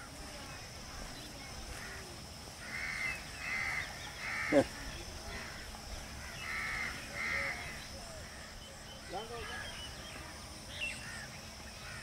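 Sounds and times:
crow cawing: 2.6s - 5.6s, 6.2s - 9.7s, 11.0s - 12.0s.

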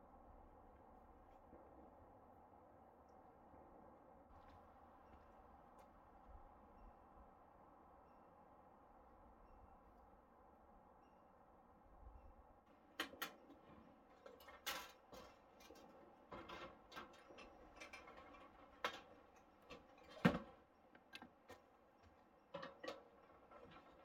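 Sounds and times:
camp cooking gear clattering: 14.1s - 21.7s, 22.4s - 24.0s.

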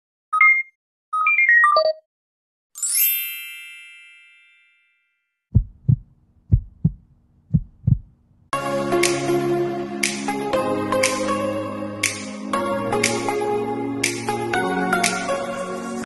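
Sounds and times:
shimmering sparkle effect: 2.8s - 5.1s
heartbeat thumps: 5.5s - 8.2s.

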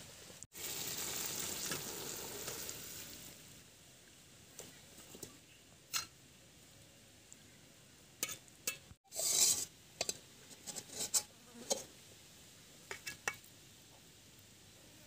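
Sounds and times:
metal spatula scraping metal plate: 9.1s - 11.9s.

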